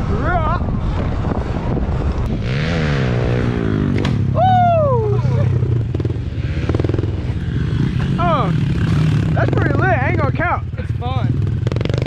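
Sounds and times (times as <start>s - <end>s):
dirt bike engine revving: 2.3s - 4.4s, 5.3s - 12.0s.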